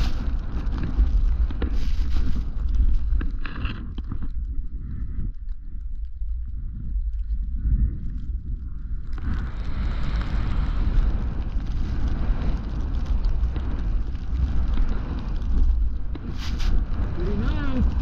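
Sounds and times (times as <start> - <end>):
skis hissing through powder snow: 0.0 - 0.8, 1.6 - 2.6, 16.2 - 17.8
wind buffeting microphone: 0.0 - 18.0.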